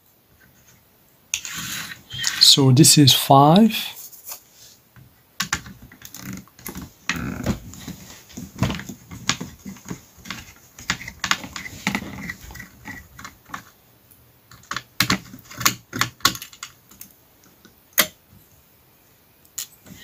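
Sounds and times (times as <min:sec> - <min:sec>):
handling noise: 0:05.0 - 0:13.8.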